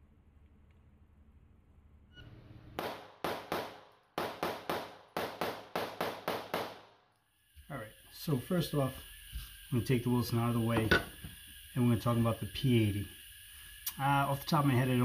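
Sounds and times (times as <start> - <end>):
pistol shots: 2.8 - 7.0.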